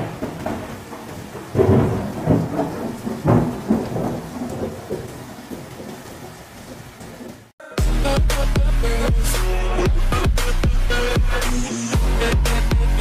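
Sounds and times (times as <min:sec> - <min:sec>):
thunder cracks and rumble: 0:00.0 - 0:07.5
rain hiss: 0:00.0 - 0:07.6.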